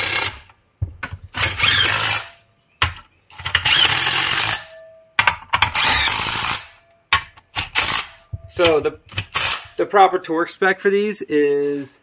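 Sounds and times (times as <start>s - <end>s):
cordless power tool running bolts: 1.3s - 2.3s, 3.4s - 4.6s, 5.6s - 6.7s, 7.6s - 9.7s.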